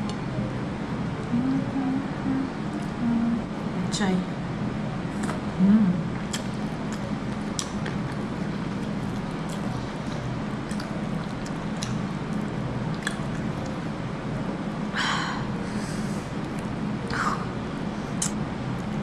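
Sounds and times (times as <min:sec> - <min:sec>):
steady low hum: 0:00.0 - 0:19.0
wet chewing and lip smacking: 0:06.2 - 0:13.9, 0:16.4 - 0:16.8
sharp wet clicks: 0:06.3 - 0:13.9.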